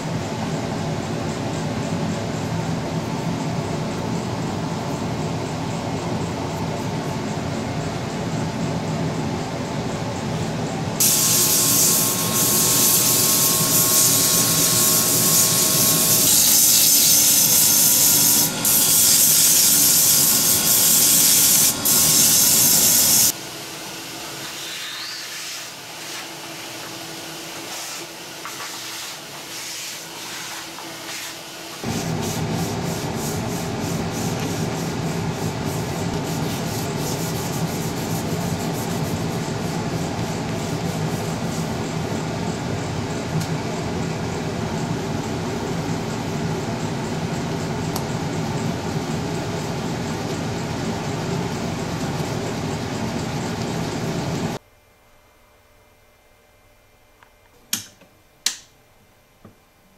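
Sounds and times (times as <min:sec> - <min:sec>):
sandpaper hissing on wood: 0:11.0 - 0:23.3, 0:24.4 - 0:26.8, 0:27.6 - 0:41.8
soft steady rubbing: 0:32.6 - 0:41.8.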